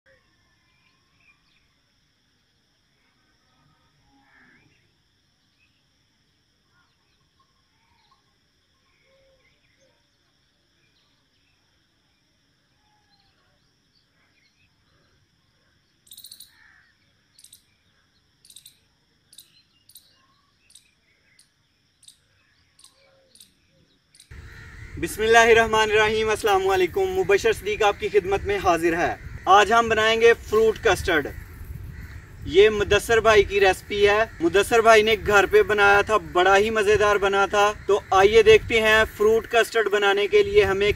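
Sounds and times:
faint bird chirps: 0:00.1 - 0:02.2, 0:02.8 - 0:40.5
short sharp bird calls: 0:24.2 - 0:25.9.

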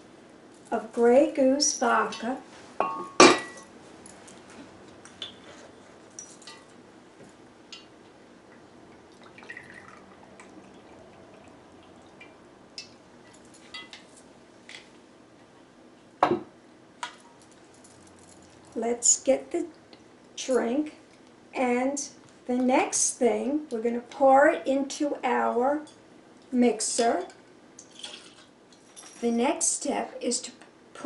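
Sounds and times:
glass clinks and taps: 0:02.8 - 0:03.7
faint liquid pouring: 0:08.5 - 0:12.4.

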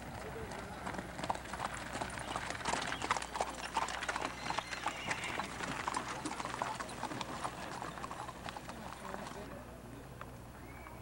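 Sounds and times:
horse hooves clip-clopping: 0:00.0 - 0:09.6.

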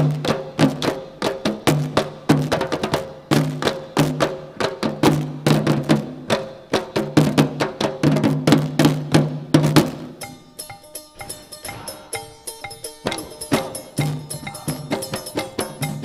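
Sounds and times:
fast drumming: 0:00.0 - 0:16.0
low held tone: 0:10.2 - 0:16.0.

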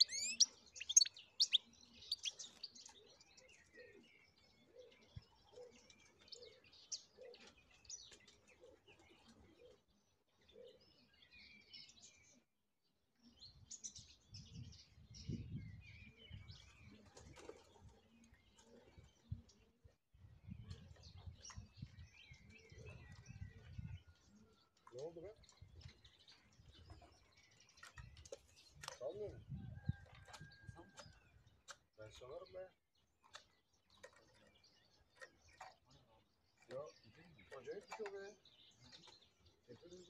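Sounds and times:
goldfinch twittering chirps: 0:00.0 - 0:03.4.

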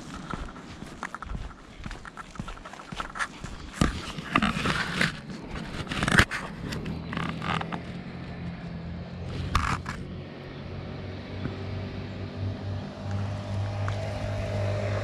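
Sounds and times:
footsteps scuffing on a path: 0:00.0 - 0:08.7
low engine hum: 0:03.5 - 0:15.0.

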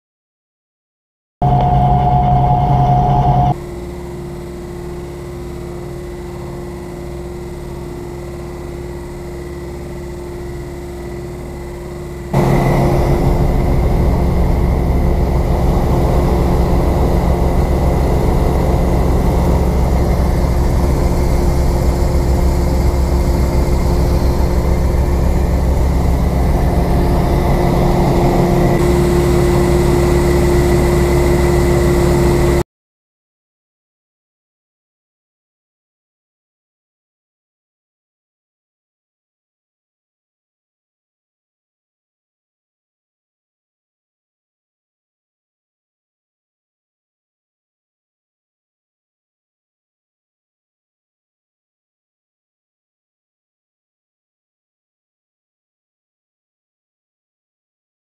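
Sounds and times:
combine harvester droning: 0:01.4 - 0:32.6.

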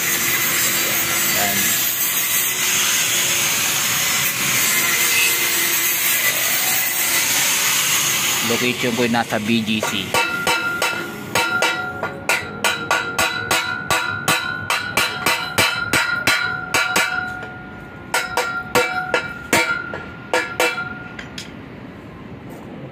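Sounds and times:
hammer blows on metal: 0:09.5 - 0:21.6.

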